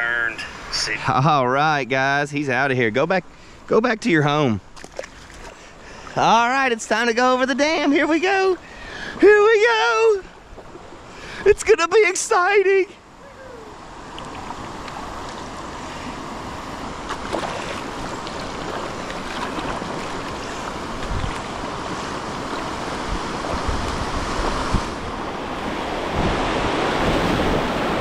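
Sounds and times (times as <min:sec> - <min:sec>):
rushing water over dam: 0:13.2 - 0:28.0
wind on microphone: 0:17.2 - 0:28.0.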